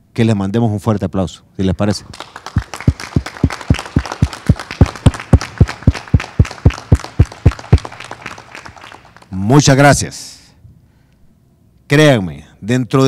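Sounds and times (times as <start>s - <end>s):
close hand claps: 2.1s - 9.4s
group applauding: 2.1s - 9.4s.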